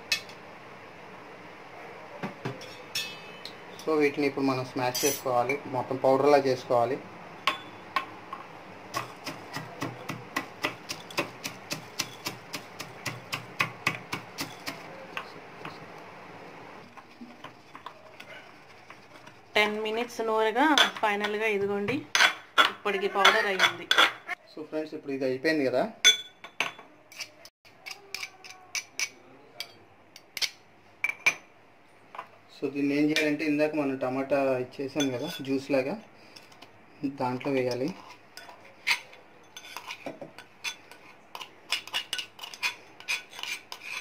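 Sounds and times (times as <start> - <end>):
pestle pounding in metal mortar: 8.9 - 14.9.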